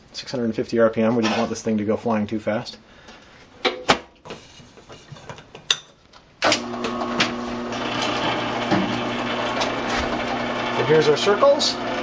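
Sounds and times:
drill press motor hum: 0:06.4 - 0:12.0.

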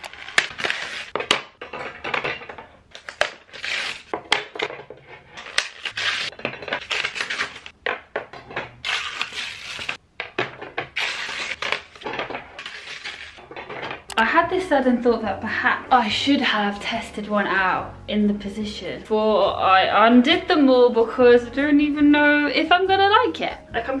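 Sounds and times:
paper packaging crumpling: 0:00.0 - 0:01.2, 0:02.9 - 0:04.1, 0:05.3 - 0:07.7, 0:08.8 - 0:10.0, 0:11.0 - 0:13.4.

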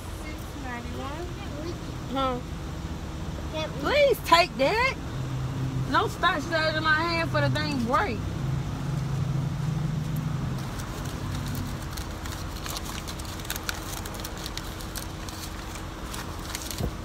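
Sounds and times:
car engine idling: 0:05.8 - 0:17.0.

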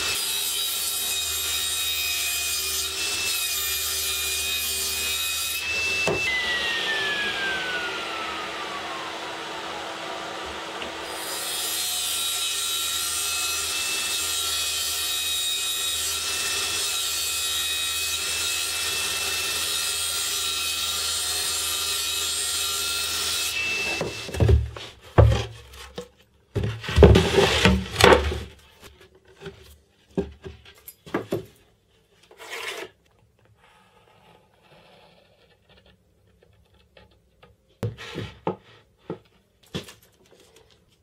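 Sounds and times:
table saw cutting plywood: 0:00.0 - 0:24.9.

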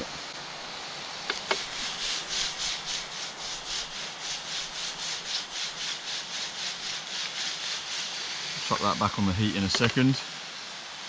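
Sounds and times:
fish sizzling in a frying pan: 0:00.0 - 0:11.0
food sliding in a shaken pan: 0:01.4 - 0:09.0.

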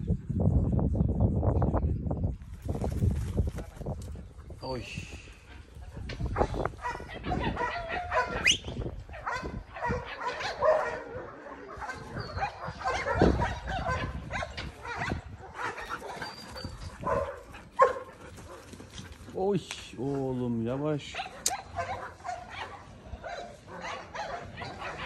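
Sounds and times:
dog barking: 0:06.3 - 0:08.5, 0:09.1 - 0:16.2, 0:17.0 - 0:18.6, 0:21.1 - 0:25.0
dog whining and yipping: 0:15.8 - 0:17.2.

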